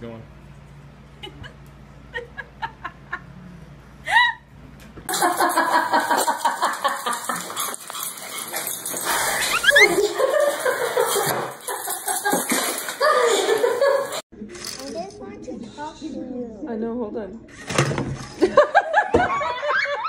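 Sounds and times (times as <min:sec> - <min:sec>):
small dog yipping and barking: 0:09.5 - 0:10.0.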